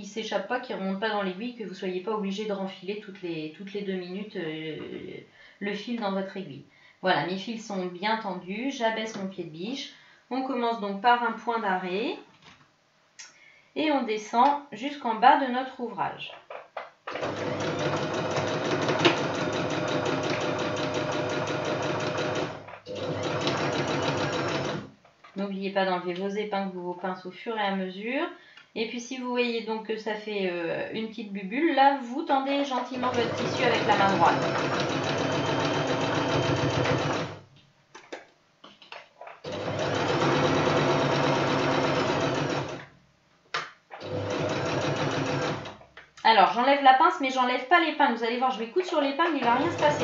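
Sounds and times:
sewing machine stitching: 17.1 - 24.9, 32.9 - 37.4, 39.4 - 42.9, 44.0 - 45.8, 49.3 - 50.0.

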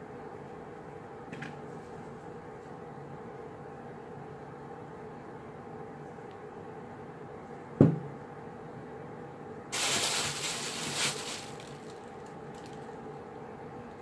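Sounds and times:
faint steady hum: 0.0 - 14.0
clay object knocking on mat: 7.8 - 8.1
plastic bag rustling: 9.7 - 12.9.

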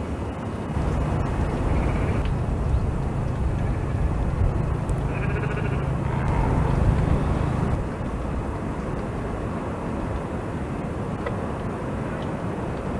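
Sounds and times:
steady hiss: 0.6 - 12.6
low rumble: 0.7 - 8.7.

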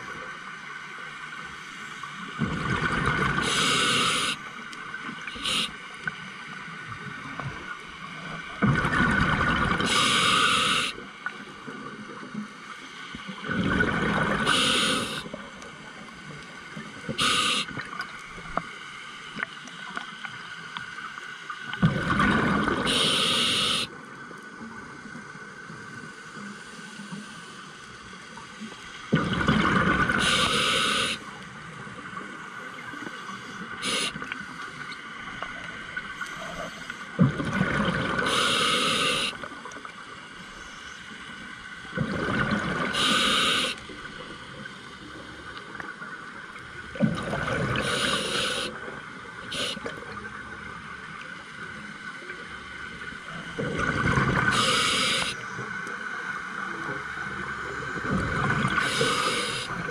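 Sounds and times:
regulator inhaling: 3.4 - 4.4, 5.4 - 5.8, 9.9 - 11.0, 14.5 - 15.3, 17.2 - 17.8, 22.9 - 23.9, 30.2 - 31.2, 33.3 - 34.3, 38.2 - 39.4, 42.9 - 43.8, 47.8 - 48.7, 49.5 - 49.9, 54.5 - 55.4, 58.8 - 59.7.

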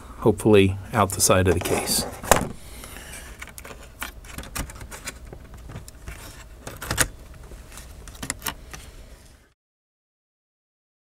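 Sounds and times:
clicks and rattles of laptop parts: 3.3 - 8.8.

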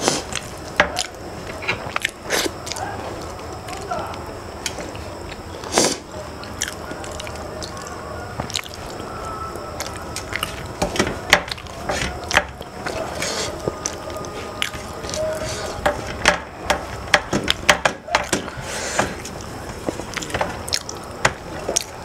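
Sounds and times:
chewing and mouth smacks: 1.8 - 3.9, 6.4 - 9.1, 9.7 - 10.8, 19.2 - 22.0.

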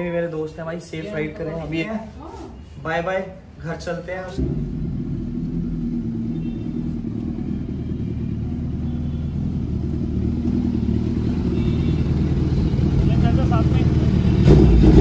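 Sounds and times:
motorcycle engine low rumble: 4.4 - 15.0.

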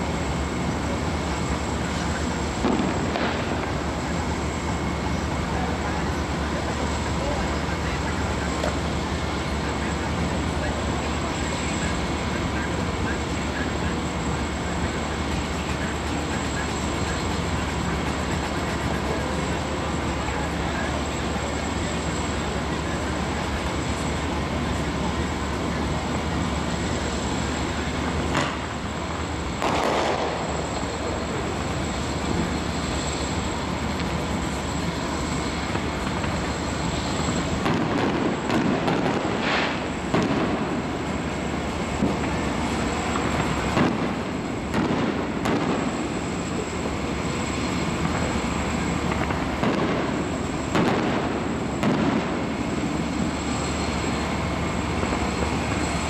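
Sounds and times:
distant fireworks bangs: 2.6 - 3.7, 28.3 - 28.7, 29.6 - 30.5, 37.6 - 40.9, 43.2 - 46.0, 49.1 - 52.5.

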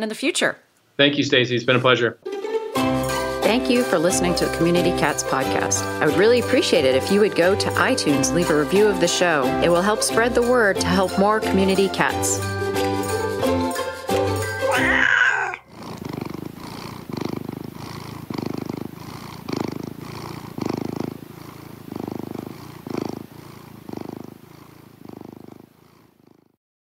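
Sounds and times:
music jingle: 1.8 - 14.9
cat purring: 3.4 - 12.4, 15.2 - 26.6.

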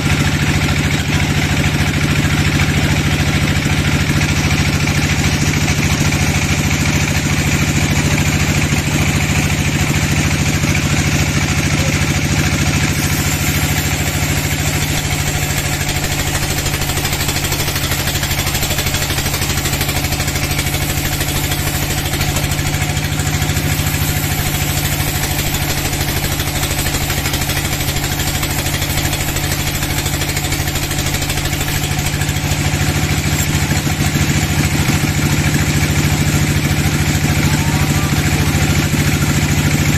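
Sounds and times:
band saw ripping through log: 12.0 - 35.2.

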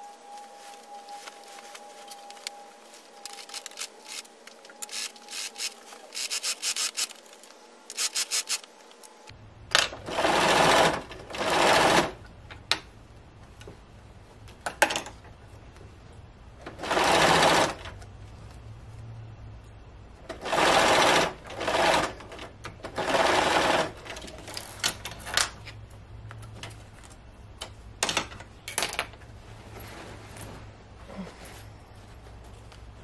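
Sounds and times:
sewing machine stitching: 16.7 - 17.9, 20.3 - 24.0.

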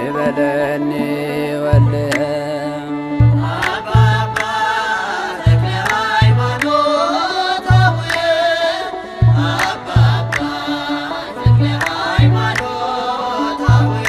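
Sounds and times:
voices singing chant-like melody: 0.0 - 14.0
deep hand drum beating: 5.4 - 6.6.

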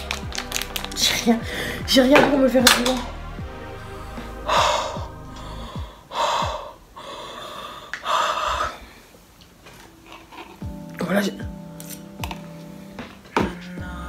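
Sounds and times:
woman gasping breaths: 4.5 - 9.1.

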